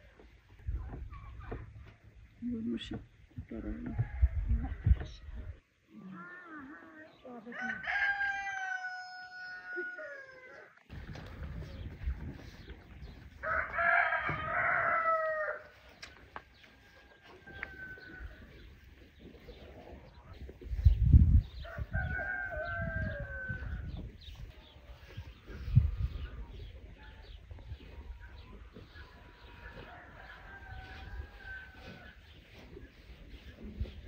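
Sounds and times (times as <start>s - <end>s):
rooster crowing: 7.6s - 10.7s, 13.4s - 15.8s, 16.8s - 18.4s, 21.6s - 23.9s, 29.6s - 32.2s.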